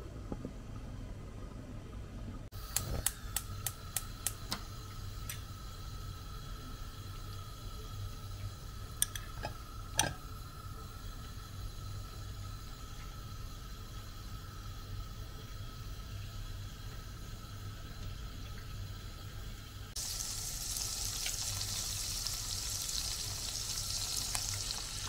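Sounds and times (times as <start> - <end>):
faint steady hum: 0.0 - 25.0
clicks and taps on cooktop: 9.0 - 10.2.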